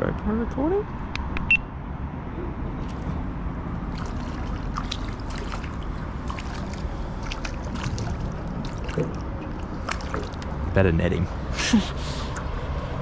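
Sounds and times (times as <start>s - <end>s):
low background rumble: 0.0s - 13.0s
fish splashing in water: 2.8s - 10.7s.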